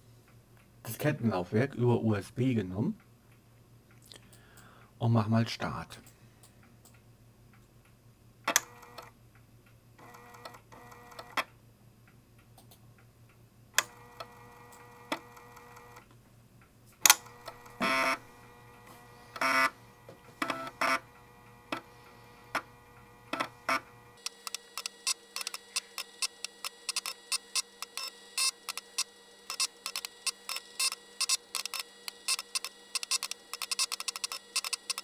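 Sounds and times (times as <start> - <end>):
floppy drive buzzing: 13.8 - 16.1, 17.0 - 35.0.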